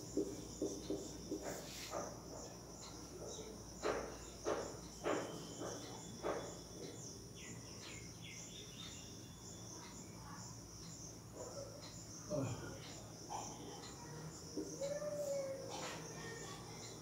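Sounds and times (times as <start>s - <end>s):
cricket chirping: 0.0s - 17.0s
marker knocking on whiteboard: 0.1s - 2.1s, 3.3s - 6.6s.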